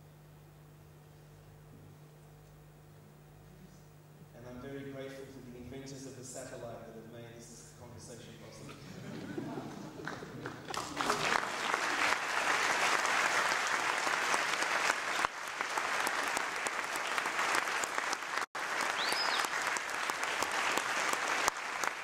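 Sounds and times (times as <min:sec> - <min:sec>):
audience applauding: 0:09.2 - 0:22.0.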